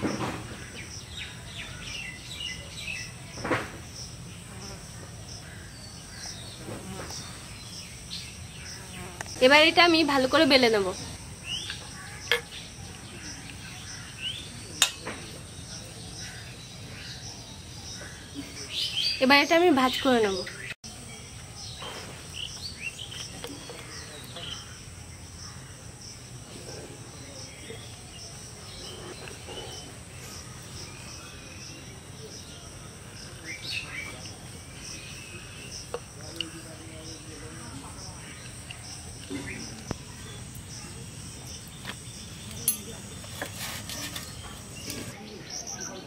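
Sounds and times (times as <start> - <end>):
faint insect buzz: 2.0 - 16.0.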